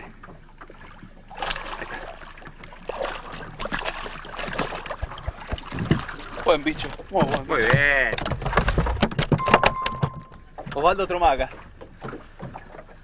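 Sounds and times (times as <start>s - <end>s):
fish splashing water: 0.5s - 9.2s.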